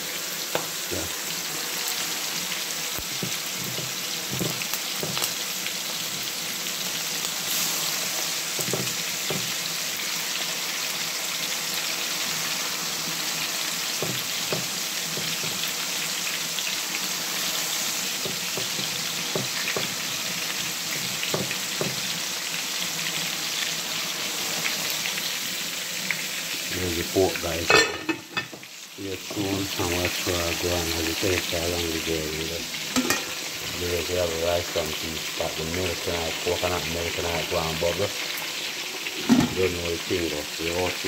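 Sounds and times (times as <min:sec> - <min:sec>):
meat frying in hot oil: 0:00.0 - 0:41.0
oil crackling and popping: 0:00.3 - 0:27.6.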